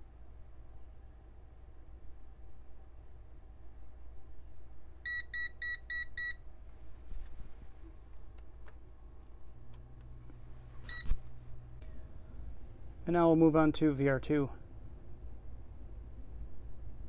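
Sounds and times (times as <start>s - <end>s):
multimeter beeping: 5.1s - 6.4s, 10.9s - 11.2s.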